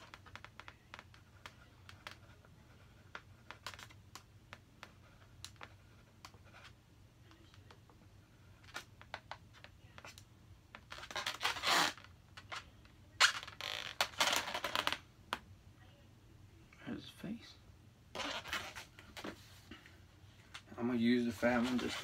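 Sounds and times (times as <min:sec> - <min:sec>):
marker scratching on balloon: 0:00.0 - 0:15.0, 0:18.1 - 0:19.6, 0:21.3 - 0:22.0
balloons rubbing squeak: 0:10.7 - 0:15.0, 0:18.1 - 0:19.0, 0:21.4 - 0:22.0.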